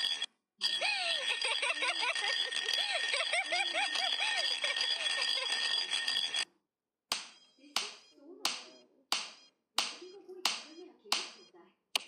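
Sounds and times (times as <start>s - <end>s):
sharp slaps: 7.1s - 11.4s.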